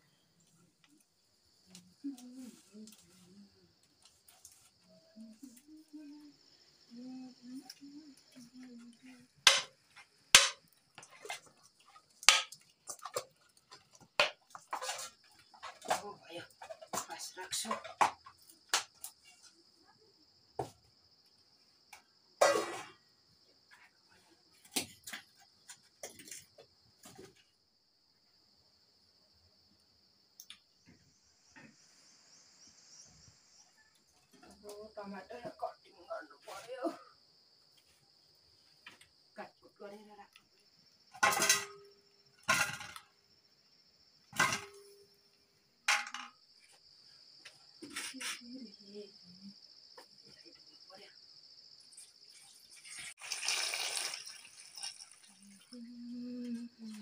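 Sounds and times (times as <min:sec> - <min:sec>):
crickets chirring: 0:00.0 - 0:57.0
knocks from handling bowls and firewood: 0:09.4 - 0:19.2, 0:41.1 - 0:43.1, 0:44.3 - 0:45.1, 0:45.9 - 0:46.8
steel bowl clattering: 0:52.6 - 0:55.7.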